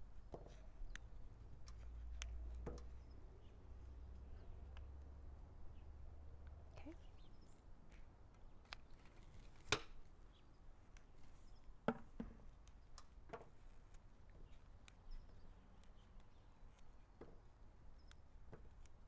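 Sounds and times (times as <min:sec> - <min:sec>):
soft clicks: 0:00.8 - 0:03.2, 0:14.8 - 0:17.0.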